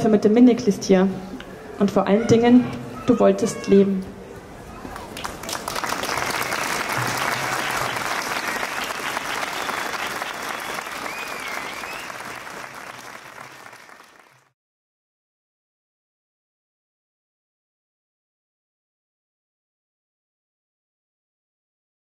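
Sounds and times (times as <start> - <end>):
crowd applauding: 4.9 - 14.5.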